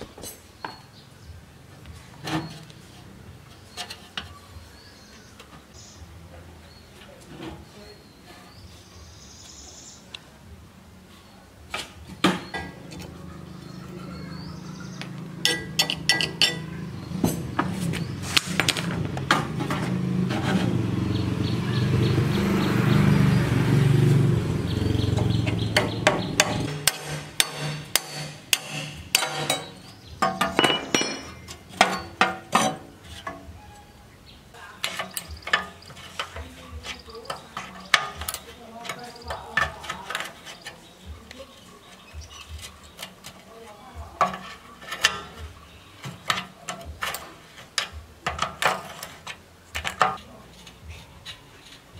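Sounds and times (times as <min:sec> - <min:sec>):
steel being ground on stone: 0:26.4 - 0:33.4
metal clinks and taps: 0:27.4 - 0:32.7.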